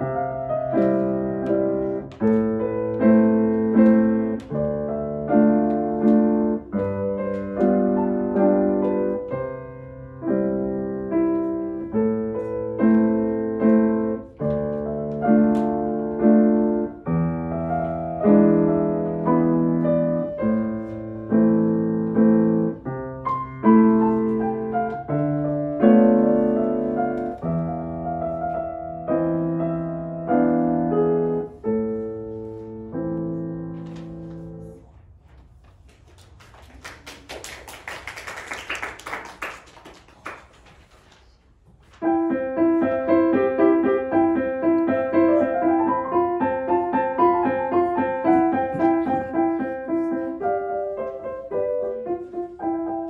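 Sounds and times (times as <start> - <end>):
solo grand piano: 0.0 - 36.4, 41.5 - 53.0
scattered clapping: 35.8 - 41.0.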